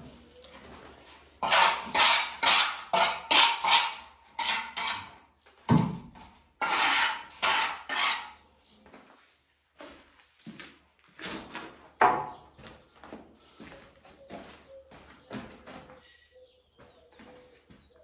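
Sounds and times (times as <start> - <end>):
metal straightedge scraping cement: 1.4 - 5.2, 6.6 - 8.4.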